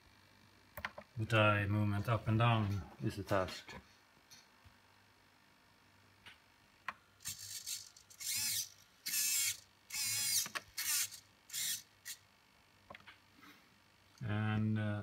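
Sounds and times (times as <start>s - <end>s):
servo motors whining: 7.2s - 12.2s.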